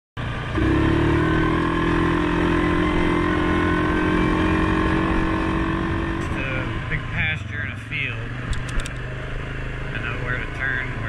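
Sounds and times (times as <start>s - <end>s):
atv engine running: 0.2s - 11.0s.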